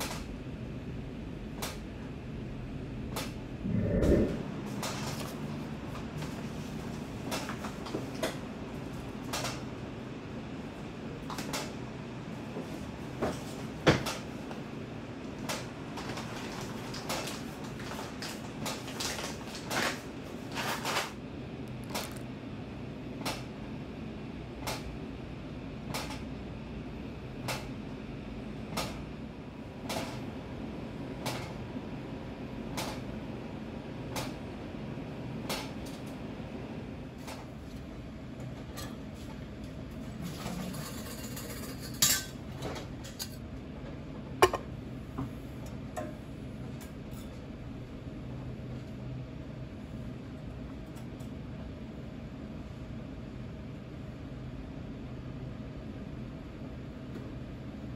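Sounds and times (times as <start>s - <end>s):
steady low hum: 0.0s - 6.8s.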